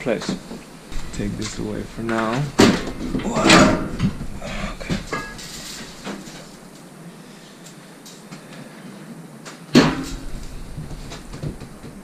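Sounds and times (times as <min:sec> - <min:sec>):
handling noise: 0:00.0 - 0:07.0, 0:09.5 - 0:12.0
metal ringing: 0:02.5 - 0:06.3.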